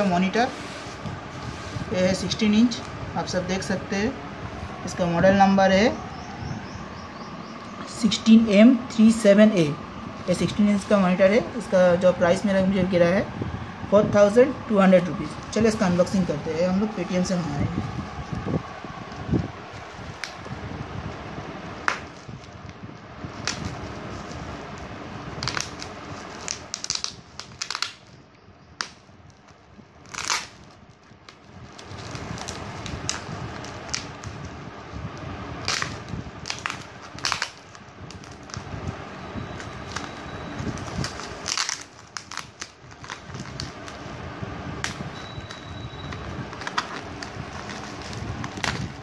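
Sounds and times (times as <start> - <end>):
bubble wrap packet crinkling: 17.8 - 28.2, 28.8 - 44.2, 44.8 - 49.0.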